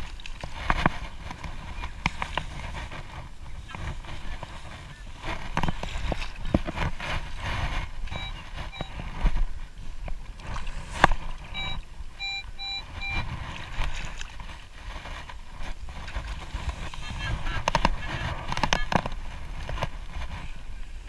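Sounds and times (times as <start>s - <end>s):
wading through shallow water: 0.0s - 21.0s
metal detector beeps: 8.1s - 9.1s, 11.5s - 13.4s.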